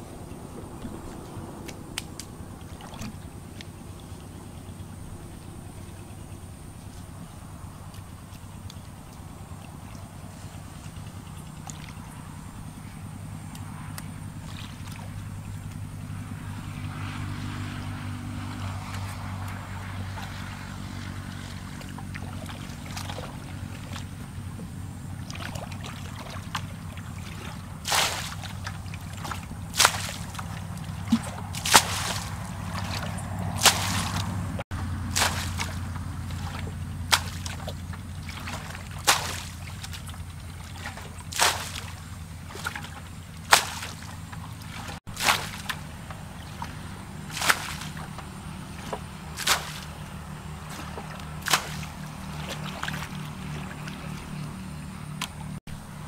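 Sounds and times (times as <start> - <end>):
thrown water splashing: 0.8 - 3.7, 16.4 - 55.6
bucket scooping water: 2.5 - 3.6, 7.9 - 12.5, 13.3 - 55.9.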